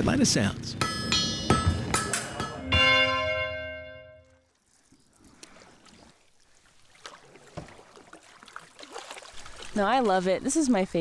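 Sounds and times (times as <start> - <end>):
chiming music note: 2.4 - 4.4
faint water sounds: 4.4 - 11.0.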